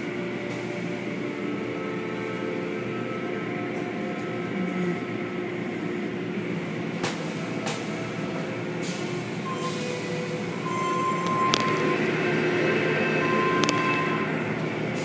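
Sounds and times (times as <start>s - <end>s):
car wash machinery humming: 0.0s - 15.0s
rushing noise: 9.9s - 15.0s.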